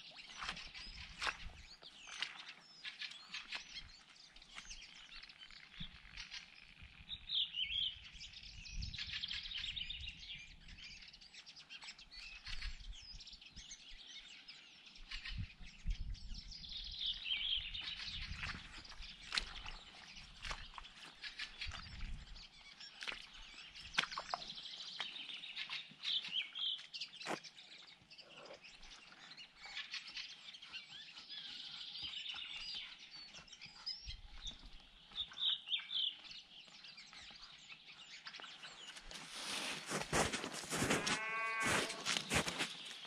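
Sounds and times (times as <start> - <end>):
crunching footsteps: 0.0 - 5.0, 17.8 - 27.5, 36.2 - 43.0
small birds chirping and trilling: 0.0 - 43.0.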